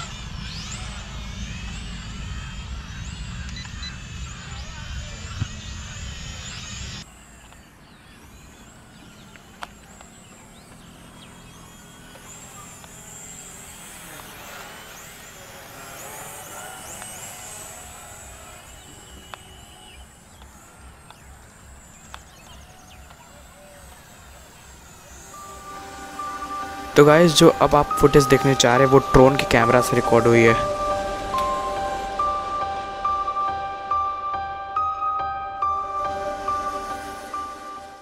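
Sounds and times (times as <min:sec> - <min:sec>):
sharp clicks: 0:09.0 - 0:11.3, 0:16.9 - 0:23.3
low rumble: 0:29.4 - 0:37.6.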